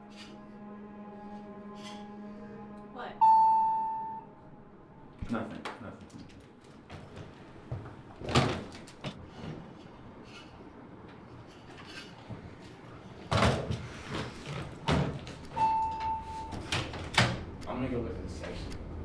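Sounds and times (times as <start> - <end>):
low hum: 0.0 - 8.2
elevator doors opening: 6.1 - 18.7.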